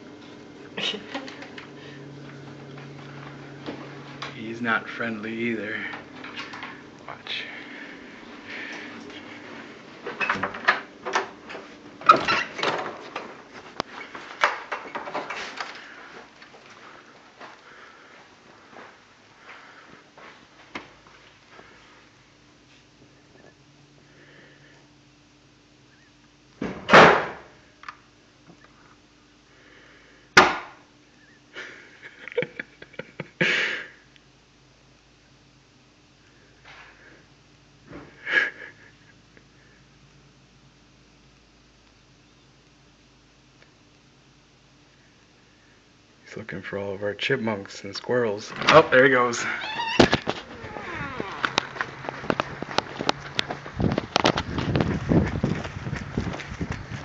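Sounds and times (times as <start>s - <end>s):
footsteps: 0.0s - 5.0s, 5.8s - 12.0s, 12.9s - 21.9s, 48.5s - 57.0s.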